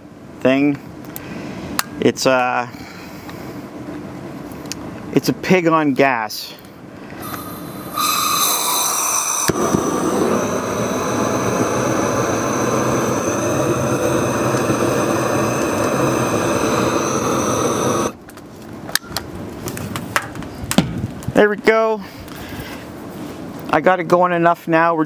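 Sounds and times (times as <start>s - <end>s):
propane torch flame blasting: 7.1s - 18.3s
torch click: 7.2s - 18.2s.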